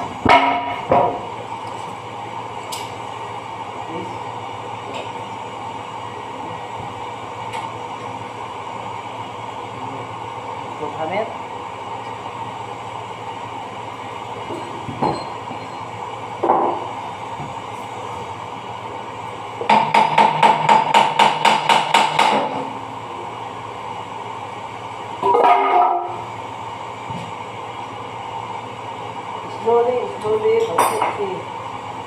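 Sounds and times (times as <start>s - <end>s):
hammer strikes on metal: 19.7s - 22.6s.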